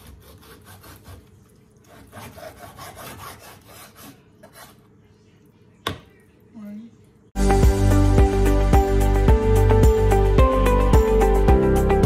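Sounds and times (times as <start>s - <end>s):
knife sawing through ribs: 0.0s - 4.8s.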